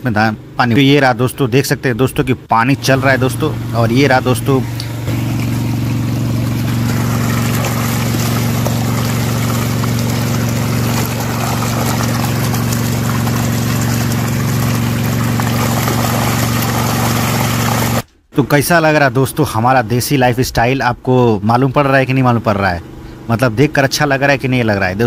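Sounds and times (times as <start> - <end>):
pump engine running: 2.5 - 18.1
water pouring from pipe: 2.8 - 18.0.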